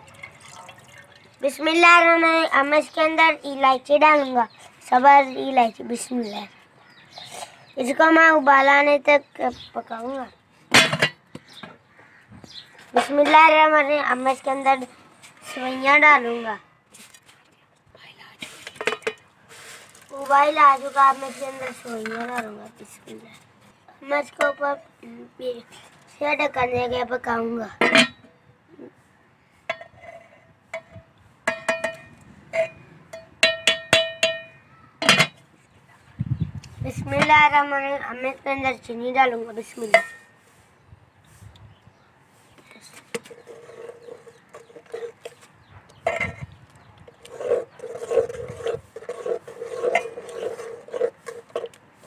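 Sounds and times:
metal ladle scraping a pot: 15.3s - 16.5s, 18.4s - 22.5s, 43.2s - 45.4s, 46.0s - 46.5s, 47.1s - 51.8s
metal ladle clinking on pot: 31.5s - 35.4s.

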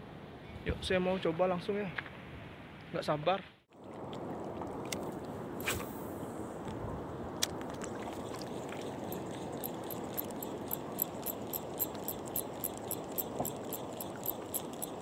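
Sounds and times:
fishing reel ticking: 8.9s - 15.0s.

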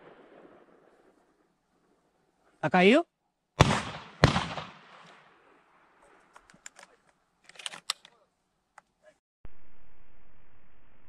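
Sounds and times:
shotgun shots echoing: 3.6s - 5.4s.

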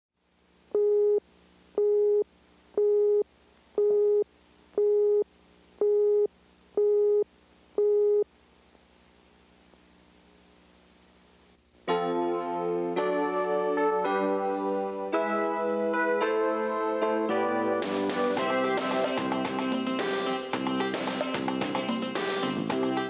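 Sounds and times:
faint low hum: 0.2s - 11.9s.

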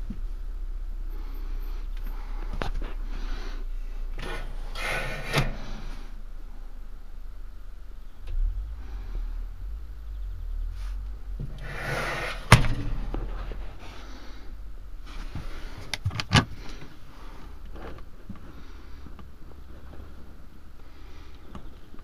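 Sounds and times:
cupboard door slamming: 12.4s - 13.1s.

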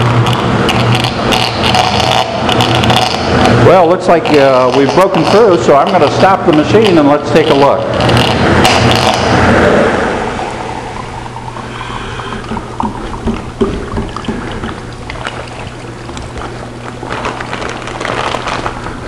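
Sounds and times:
steady low hum: 0.0s - 19.0s
plastic bag rustling: 15.1s - 19.0s.

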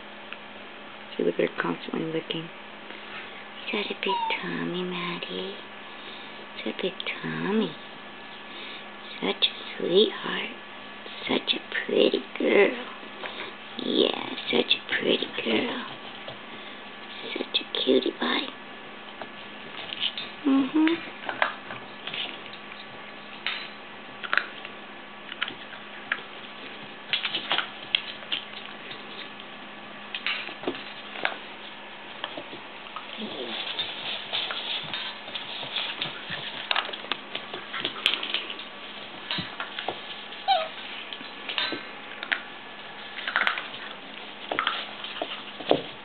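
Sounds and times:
mains hum: 0.0s - 46.0s
puppy whimper: 4.0s - 4.6s, 40.4s - 40.8s
puppies scuffling on wooden floor: 19.1s - 20.4s, 21.1s - 23.4s, 24.1s - 29.6s, 30.2s - 46.0s.

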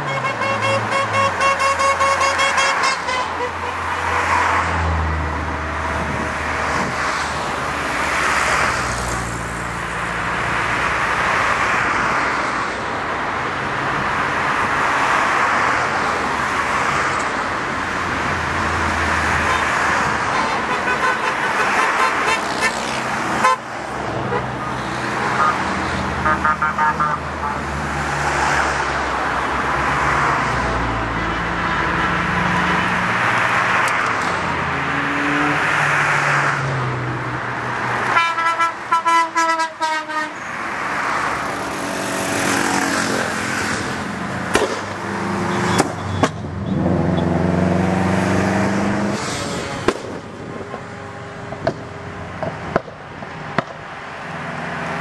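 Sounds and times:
car horns tooting: 0.0s - 4.6s, 19.4s - 27.6s, 38.0s - 40.6s
cars driving past: 0.0s - 39.1s, 39.9s - 55.0s.

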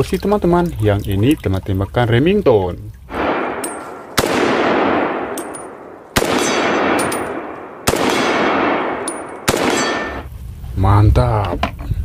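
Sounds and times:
rifle shots with echo: 3.1s - 10.3s.

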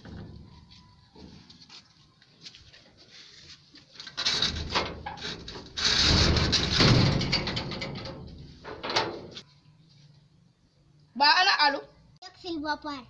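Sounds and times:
sheet-metal door scraping and rattling: 4.0s - 9.4s.

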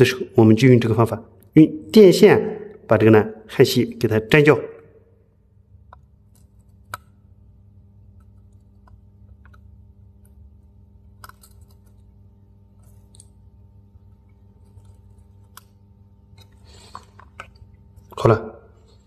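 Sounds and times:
low steady hum: 0.0s - 19.0s
soldering clicks and crackles: 5.7s - 19.0s.

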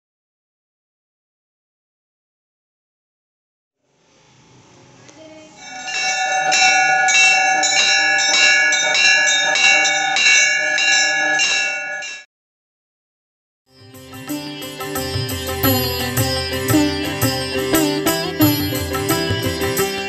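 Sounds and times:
bell ringing rhythmically: 5.6s - 12.3s, 13.8s - 20.0s.

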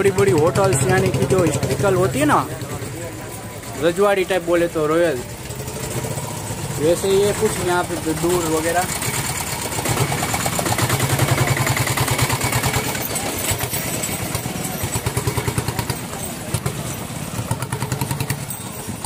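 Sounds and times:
motorcycle engine putter: 5.4s - 19.0s.

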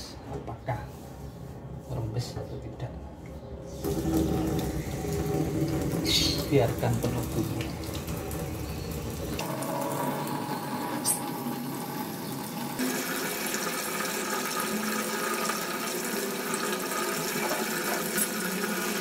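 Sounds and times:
water gurgling down drain: 3.8s - 10.8s
water running into metal sink: 3.8s - 19.0s.

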